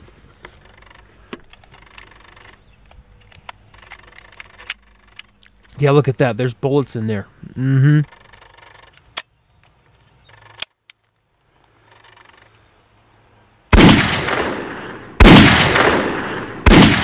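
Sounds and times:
faint gun handling clicks: 0.4 - 5.8, 8.1 - 13.0
toy revolver bangs: 15.2 - 17.0.

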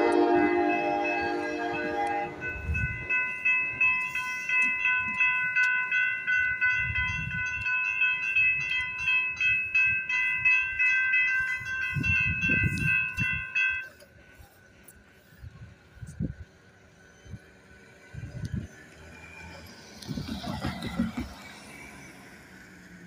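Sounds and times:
railroad crossing bell ringing: 0.0 - 16.2.

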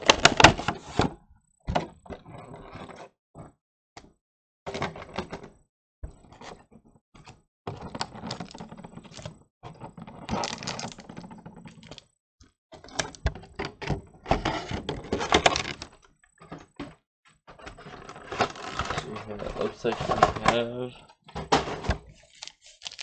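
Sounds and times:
plastic packaging crackling: 10.3 - 12.0, 22.1 - 23.0.

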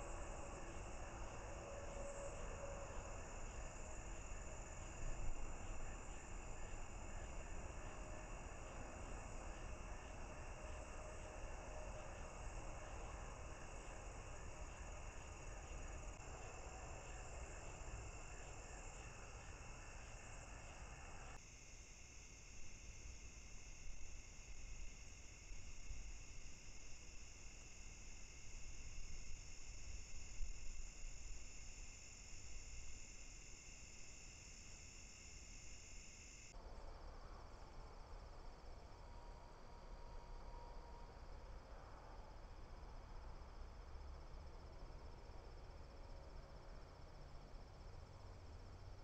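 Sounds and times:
crickets trilling: 0.0 - 36.6
faint hiss: 0.0 - 39.0.

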